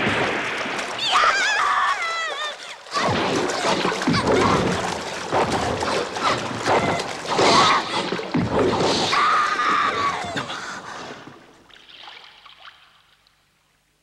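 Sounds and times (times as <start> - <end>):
water splashing and churning: 0.0 - 13.5
woman crying out: 1.1 - 3.2.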